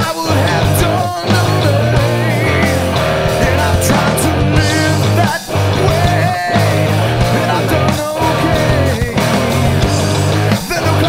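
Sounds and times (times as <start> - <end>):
bass line: 0.0 - 11.0
electric guitar: 0.0 - 11.0
rock band playing: 0.0 - 11.0.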